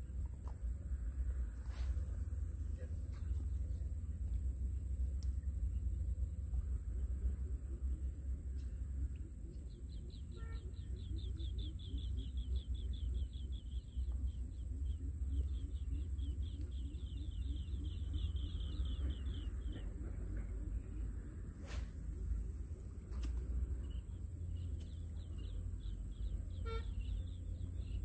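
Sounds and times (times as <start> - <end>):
bird trilling: 9.6 - 21.0, 25.1 - 28.0.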